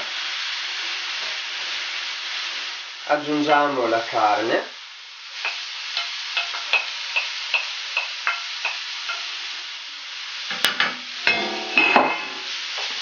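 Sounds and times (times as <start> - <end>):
meat sizzling in a frying pan: 0.0 - 13.0.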